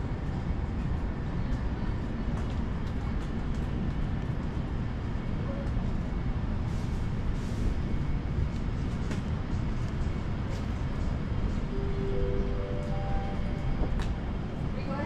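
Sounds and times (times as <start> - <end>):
low rumbling store ambience: 0.0 - 15.0.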